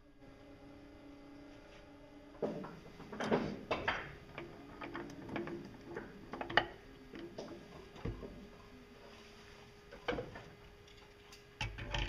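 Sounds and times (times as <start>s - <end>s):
metal parts clicking and knocking: 3.1s - 8.3s.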